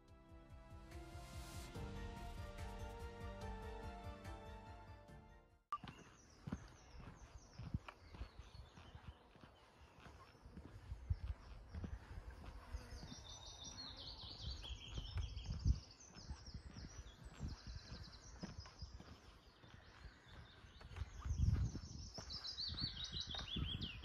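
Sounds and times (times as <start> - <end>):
footsteps on grass: 5.8 - 24.0
songbirds trilling: 5.8 - 24.0.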